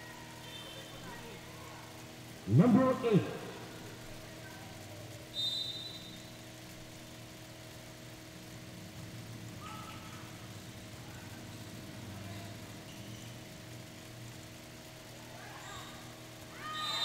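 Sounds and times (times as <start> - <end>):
low electrical hum: 0.0 - 17.0
referee's whistle blast: 5.3 - 6.3, 16.6 - 17.0.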